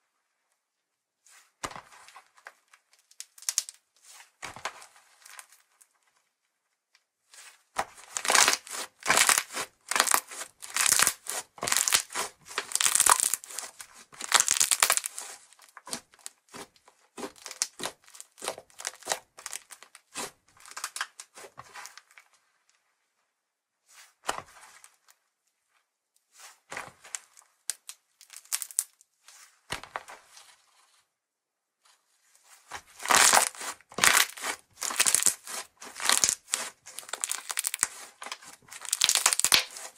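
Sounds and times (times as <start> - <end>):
slime crackling and crinkling: 2.7 - 5.9, 8.0 - 22.2, 27.0 - 29.0, 32.6 - 39.9.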